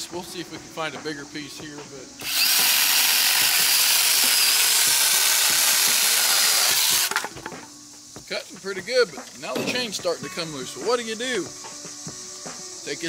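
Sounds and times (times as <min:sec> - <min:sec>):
chainsaw cutting through a branch: 0:02.2 - 0:07.3
chainsaw motor whine: 0:02.2 - 0:07.4.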